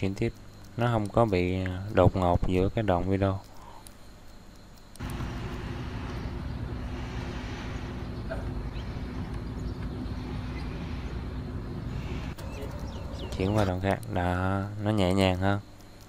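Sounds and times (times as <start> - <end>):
road noise: 5.0 - 14.1
vehicle engine hum: 5.0 - 14.1.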